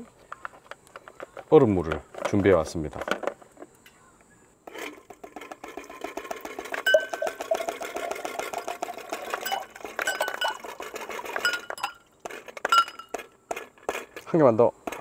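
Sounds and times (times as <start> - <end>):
ice cubes clinking on glass: 5.8 - 13.2
water pouring into glass: 6.8 - 10.8.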